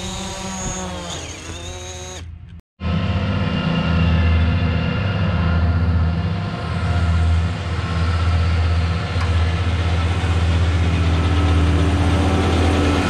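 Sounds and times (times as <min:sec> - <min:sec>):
mower whir: 0:00.0 - 0:02.6
tractor diesel engine drone: 0:00.0 - 0:13.0.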